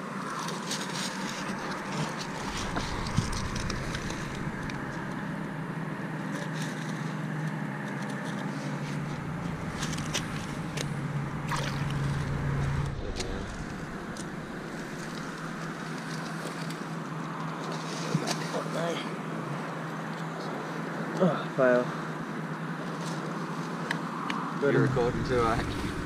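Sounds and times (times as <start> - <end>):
gravel clicking: 0.1 - 18.4
motor humming: 1.6 - 6.0, 8.9 - 16.2, 24.8 - 26.0
light water splashes: 10.8 - 12.3.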